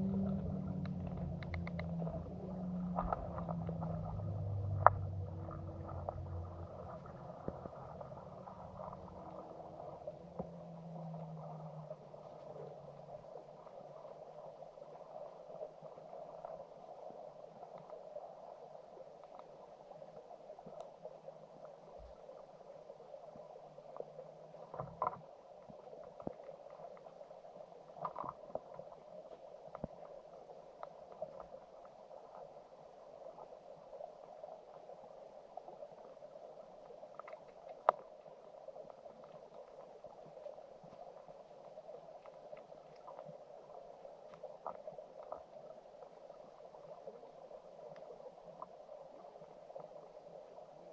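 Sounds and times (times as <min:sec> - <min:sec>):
faint clicks: 0:00.0 - 0:12.8, 0:37.0 - 0:46.1
stream water heard underwater: 0:00.0 - 0:50.9.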